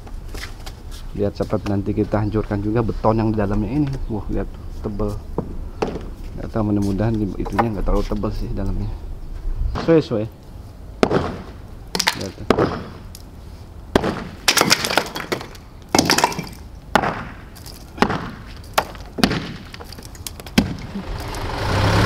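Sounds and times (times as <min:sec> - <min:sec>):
sledgehammer smashing stone and concrete: 0:11.0 - 0:13.1, 0:14.0 - 0:20.9.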